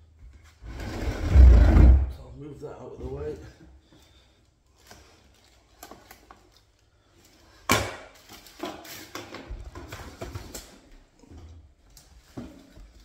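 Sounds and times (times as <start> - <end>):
objects knocking and clattering: 7.6 - 13.0.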